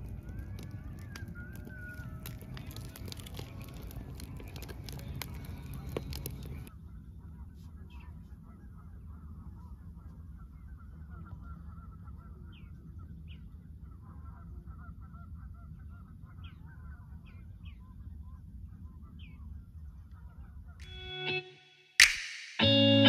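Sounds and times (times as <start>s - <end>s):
steady low rumble: 0.0s - 20.4s
waterfowl calling: 9.6s - 17.2s.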